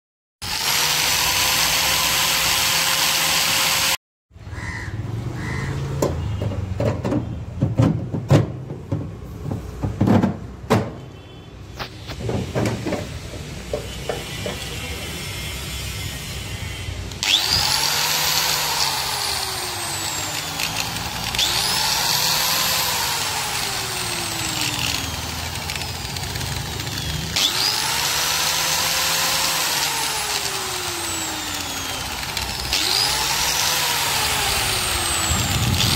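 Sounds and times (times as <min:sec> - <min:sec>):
power tool spinning: 0:00.4 - 0:04.0, 0:14.0 - 0:35.9.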